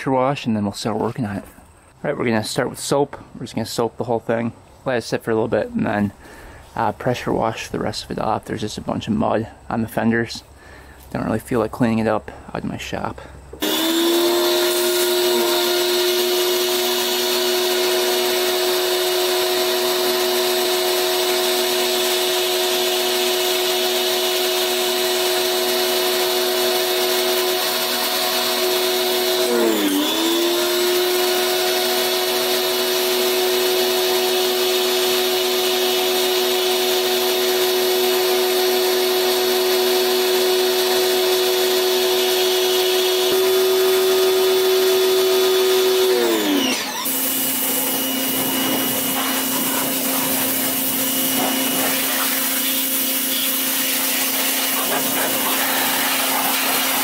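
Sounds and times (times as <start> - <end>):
pressure washer motor whine: 13.6 - 57.0
water spray hissing: 47.1 - 57.0.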